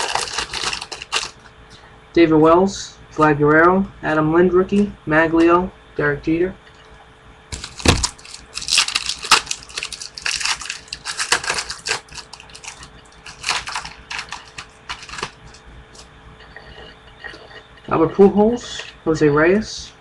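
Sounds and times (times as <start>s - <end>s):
foil pack crinkling: 0.0s - 1.5s, 7.5s - 16.1s.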